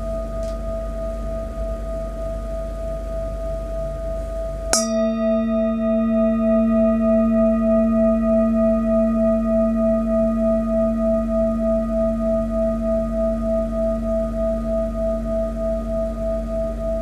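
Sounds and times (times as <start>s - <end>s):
wooden mallet striking bowl: 4.7s - 8.6s
metal singing bowl ringing: 4.7s - 17.0s.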